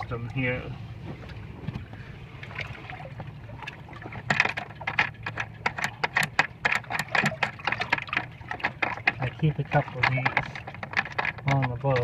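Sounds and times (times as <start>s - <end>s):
low background rumble: 0.0s - 12.0s
metal hardware clicking and rattling: 4.2s - 12.0s.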